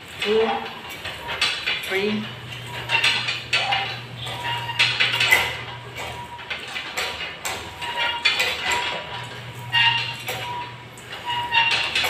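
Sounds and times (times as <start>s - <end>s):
cable machine chain rattling: 0.0s - 12.0s
weight stack knocking: 0.2s - 12.0s.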